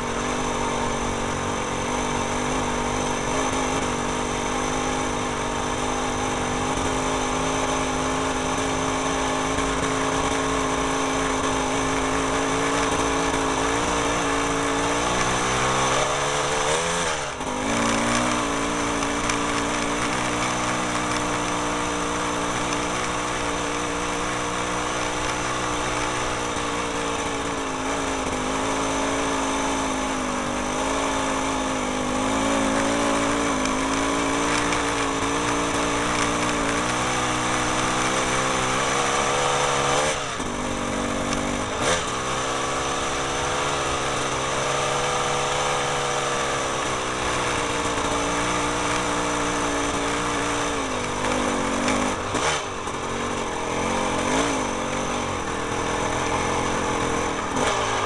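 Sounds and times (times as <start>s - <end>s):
small engine running: 0.0s - 58.0s.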